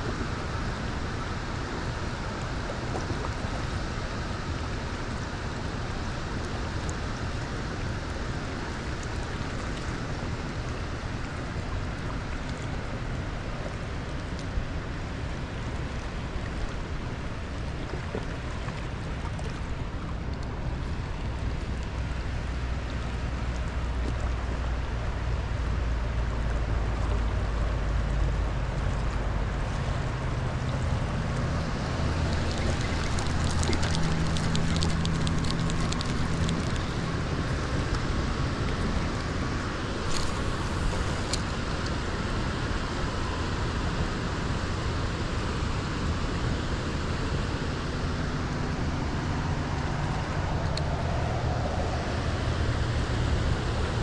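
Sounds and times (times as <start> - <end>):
water rushing through spillway: 0.0 - 54.0
low droning rumble: 17.0 - 45.1.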